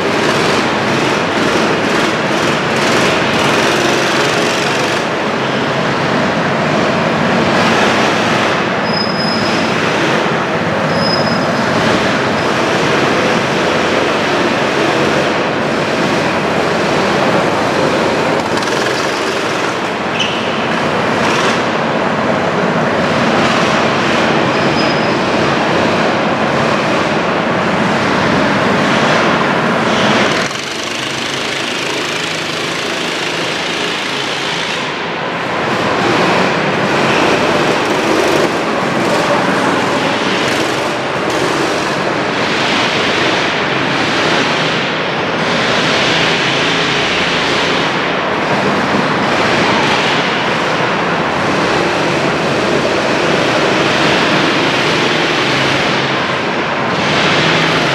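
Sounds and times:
go-kart engines droning: 0:00.0 - 0:57.9
high tire squeaks: 0:08.8 - 0:09.8, 0:10.8 - 0:12.6, 0:20.1 - 0:20.9.

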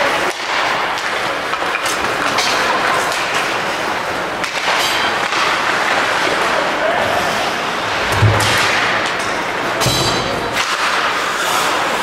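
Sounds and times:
crowd and skate noise: 0:00.0 - 0:12.0
sharp knocks of sticks and puck: 0:00.2 - 0:03.7, 0:04.4 - 0:06.4, 0:08.1 - 0:11.8.

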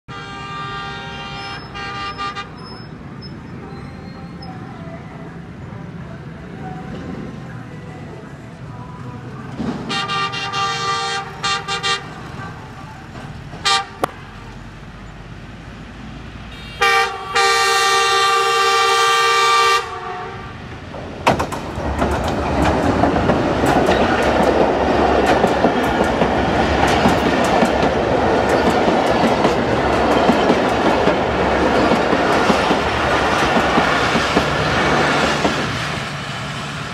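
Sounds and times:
train horn: 0:00.1 - 0:02.8, 0:09.8 - 0:12.2, 0:13.6 - 0:14.1, 0:16.5 - 0:20.6
train wheels rumbling on rail: 0:00.3 - 0:36.9
rail joint clicks: 0:20.7 - 0:36.9.

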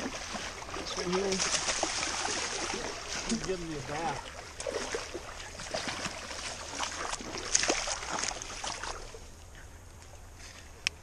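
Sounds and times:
fish thrashing and splashing: 0:00.0 - 0:09.2.

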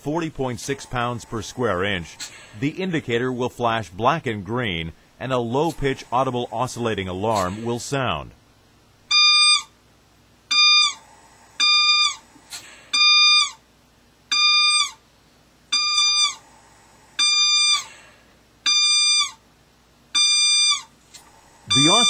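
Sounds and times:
ventilator alarm beeps: 0:09.1 - 0:09.8, 0:10.5 - 0:13.6, 0:14.3 - 0:15.0, 0:15.7 - 0:16.5, 0:17.2 - 0:18.0, 0:18.6 - 0:19.4, 0:20.1 - 0:20.9, 0:21.5 - 0:22.0.

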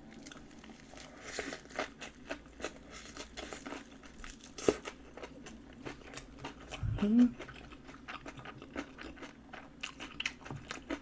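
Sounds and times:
chewing crunchy food: 0:00.0 - 0:11.0.

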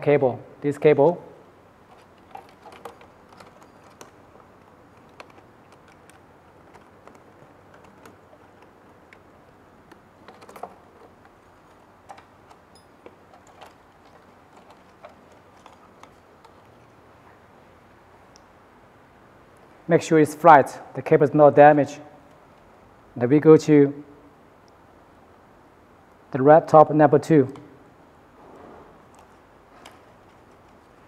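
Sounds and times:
ribbon cables clicking: 0:01.8 - 0:17.0.

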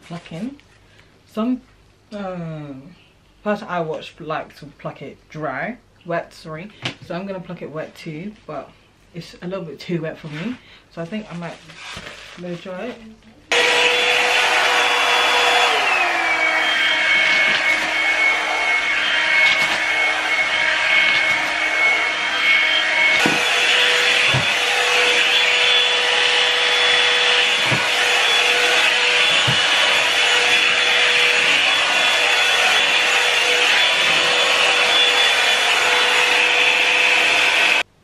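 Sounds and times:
hot-air brush motor whine: 0:13.5 - 0:37.9.

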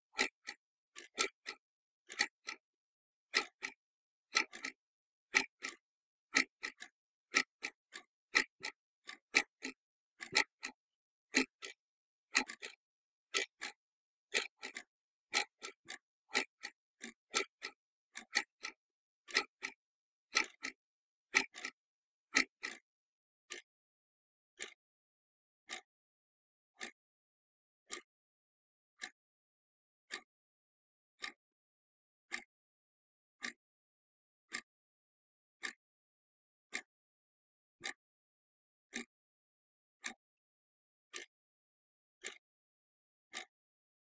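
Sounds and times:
clock ticking: 0:04.4 - 0:04.8, 0:08.4 - 0:10.8, 0:19.4 - 0:19.8.

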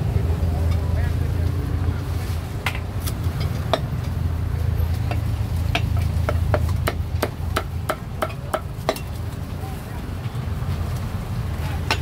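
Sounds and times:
cleaver chopping on wooden block: 0:05.1 - 0:09.1.

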